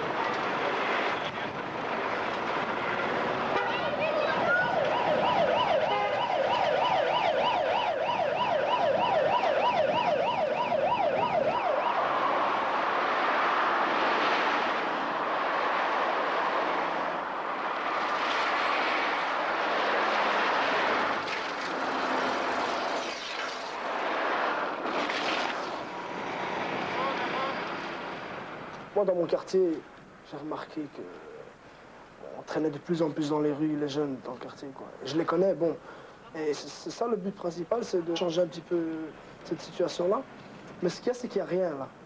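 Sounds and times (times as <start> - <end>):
traffic noise: 0.0 - 42.0
siren yelping: 3.8 - 12.5.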